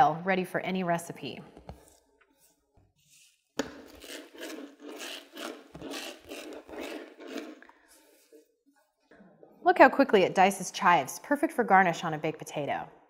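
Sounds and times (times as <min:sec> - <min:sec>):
herb mincer rubbing on board: 0:03.9 - 0:07.6.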